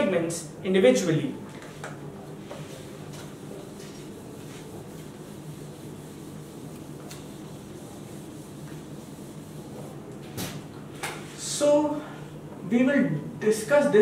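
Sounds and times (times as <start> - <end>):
steady low hum: 0.0 - 14.0
eraser rubbing on whiteboard: 2.6 - 10.0.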